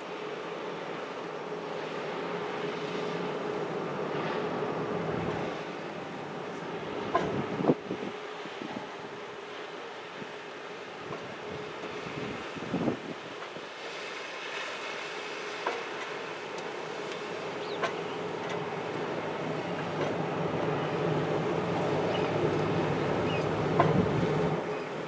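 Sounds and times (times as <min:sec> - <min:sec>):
ship engine rumble: 0:00.0 - 0:25.0.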